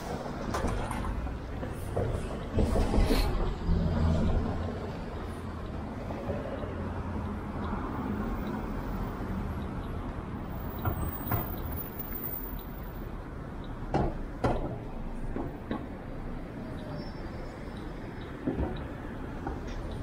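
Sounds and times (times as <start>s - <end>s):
cars driving past: 0.0s - 20.0s.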